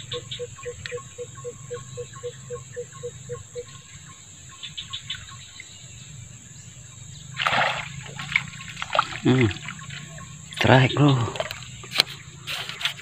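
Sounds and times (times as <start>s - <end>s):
fish splash at water surface: 7.4s - 10.2s.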